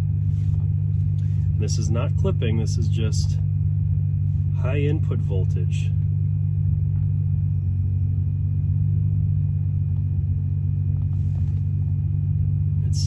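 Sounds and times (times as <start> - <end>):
subwoofer low test tone hum: 0.0 - 13.0.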